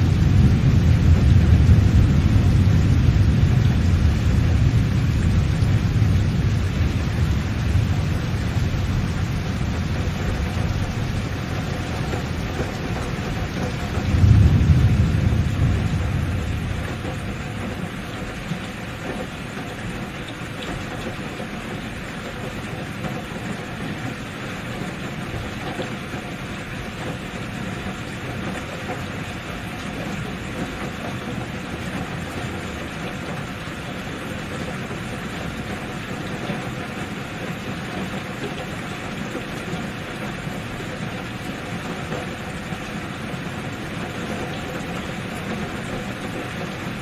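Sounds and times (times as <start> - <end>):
steady rain: 0.0 - 47.0.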